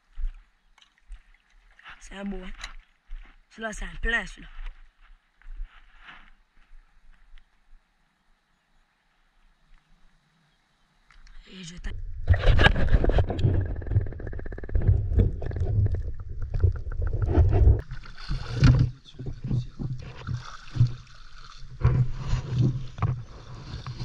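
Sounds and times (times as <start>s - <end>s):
legs wading through water: 0.4s - 3.4s, 12.4s - 24.0s
underwater churning: 12.1s - 24.0s.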